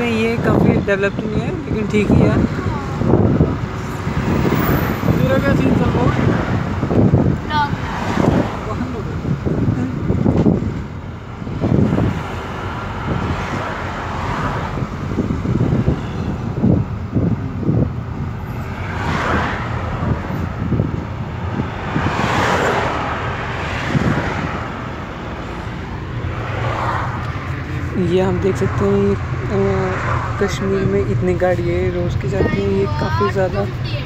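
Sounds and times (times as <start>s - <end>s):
road and engine noise inside vehicle: 0.0s - 34.0s.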